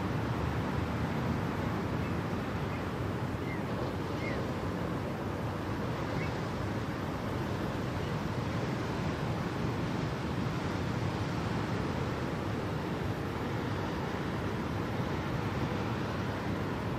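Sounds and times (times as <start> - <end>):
steady rushing noise: 0.0 - 16.9.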